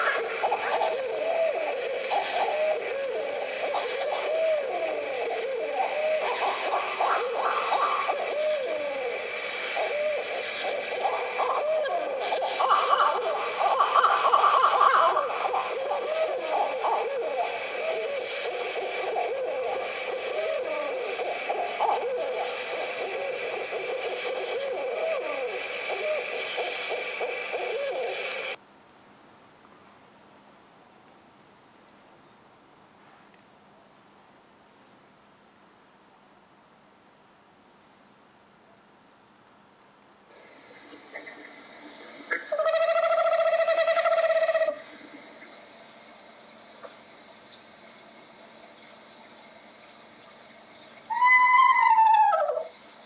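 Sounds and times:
animals calling at night: 0.0s - 28.6s, 40.3s - 53.0s.

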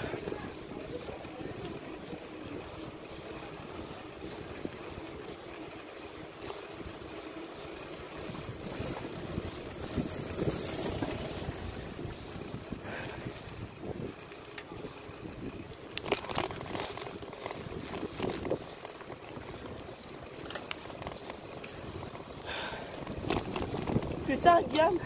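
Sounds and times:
bicycle tyre rumble on asphalt: 0.0s - 25.0s
wind on microphone: 8.2s - 14.2s, 23.0s - 25.0s.

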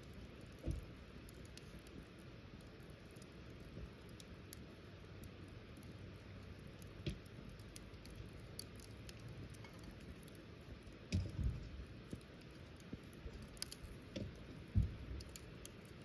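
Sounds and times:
sharp snaps and pops: 0.0s - 16.0s
wood fire crackling: 0.0s - 16.0s
dull low thuds: 11.1s - 11.8s, 14.2s - 15.2s.

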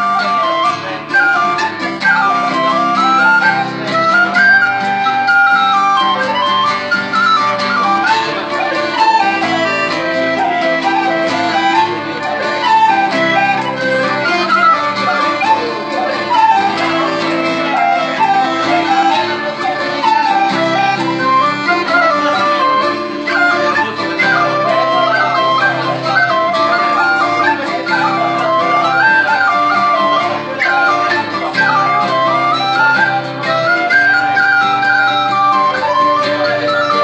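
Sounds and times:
strummed acoustic guitar: 0.0s - 37.0s
whistle playing folk melody: 0.0s - 37.0s.

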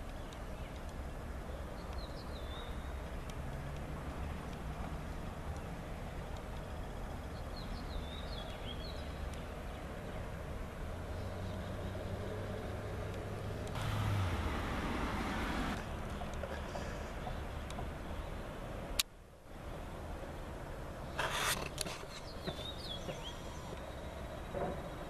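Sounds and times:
rushing noise: 13.6s - 17.3s.

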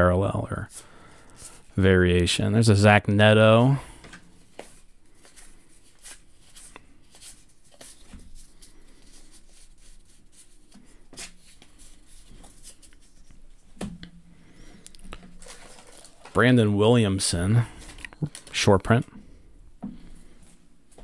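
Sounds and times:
cards sliding and ticking: 4.1s - 13.4s.

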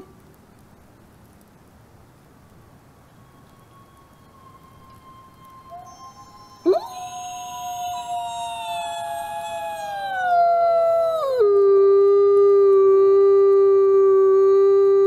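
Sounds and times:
wolf howling: 5.2s - 15.0s.

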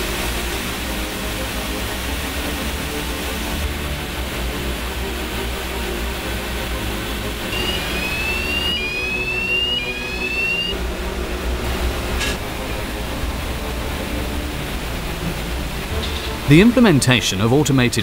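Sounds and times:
high whine rising: 7.5s - 10.8s.

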